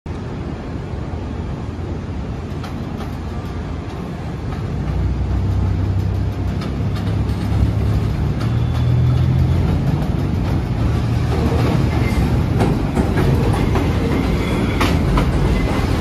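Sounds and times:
subway train rumbling: 0.1 - 16.0.

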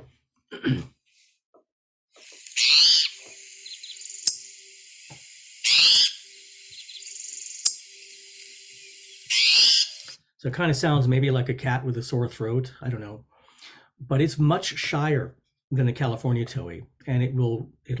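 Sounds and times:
bird raspy mewing call: 2.5 - 4.4, 5.6 - 7.8, 9.3 - 10.0.

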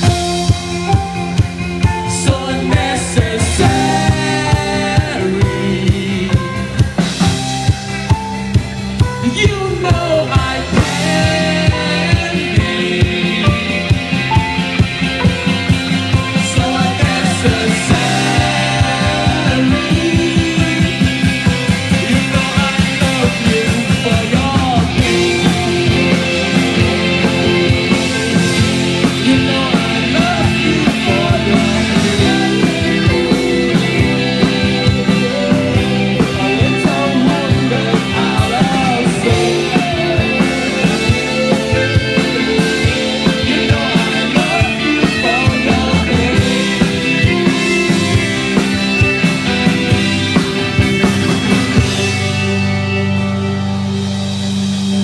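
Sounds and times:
bass guitar: 0.0 - 55.0
drum kit beat: 0.0 - 55.0
electric guitar: 0.0 - 55.0
person singing: 1.8 - 7.2, 9.1 - 14.7, 16.1 - 48.1.

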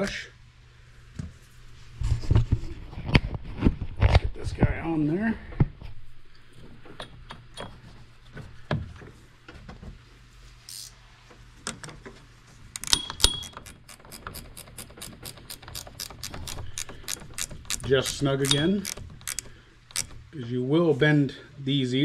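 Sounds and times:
ratchet wrench clicking: 10.7 - 10.9, 12.8 - 20.2
metal clicks and knocks: 12.8 - 20.4.

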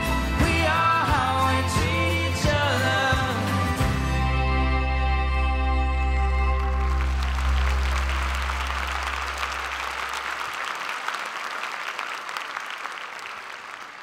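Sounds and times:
audience applauding: 6.4 - 14.0.

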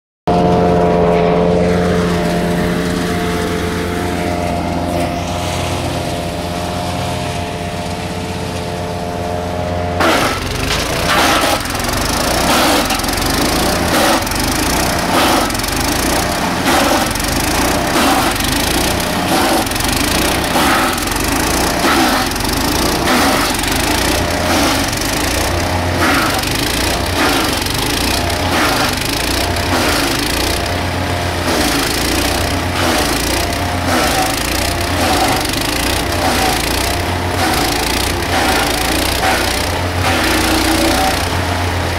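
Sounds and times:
wood chipper engine running: 0.3 - 41.9
branches cracking in chipper: 10.0 - 41.5.

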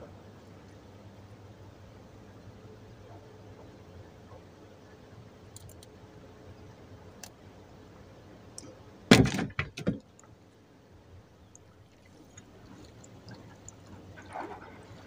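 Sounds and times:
knocks and bangs in a boat: 9.1 - 10.2, 12.0 - 15.0.

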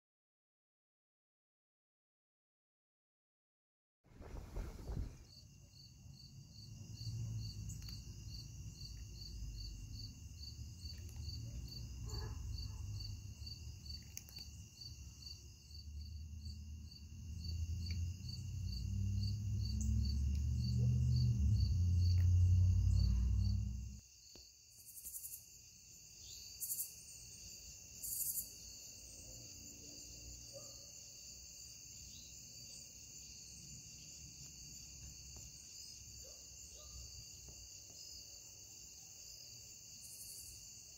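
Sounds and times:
low rumble: 4.2 - 5.3, 18.8 - 24.0
crickets and insects trilling: 4.2 - 40.9.

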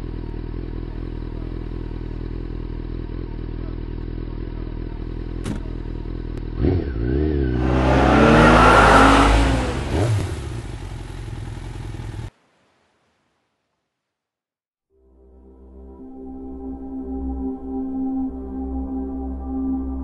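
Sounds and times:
motorcycle engine revving: 0.0 - 12.3.

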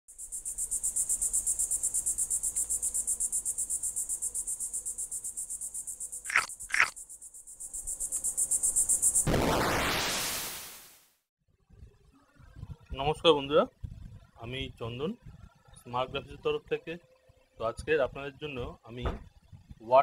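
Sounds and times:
insects trilling: 0.1 - 9.3.

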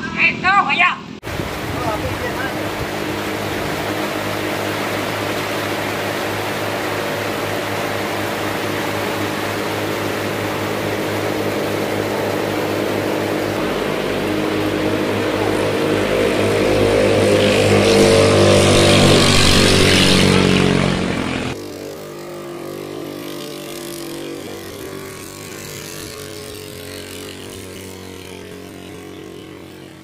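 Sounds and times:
distant boat engine: 0.0 - 30.0
boat engine at high revs: 1.0 - 30.0
heavy rain on water: 1.2 - 21.0.

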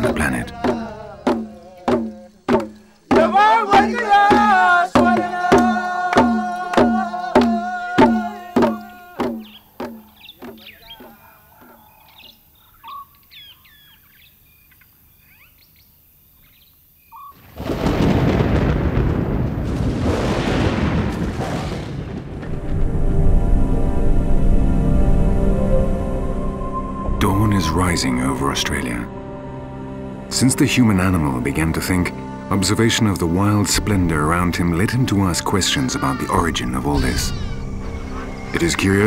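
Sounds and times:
ceremonial drumming: 0.0 - 11.2
faint chirps: 8.8 - 17.4
thunder rumbling: 17.4 - 29.1
long held tones: 22.6 - 30.3.

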